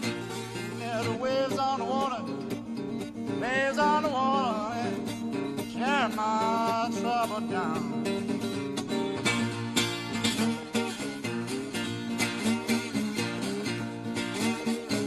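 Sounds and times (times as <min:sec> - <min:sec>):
person singing: 0:00.0 - 0:08.4
acoustic guitar playing blues: 0:00.0 - 0:15.0.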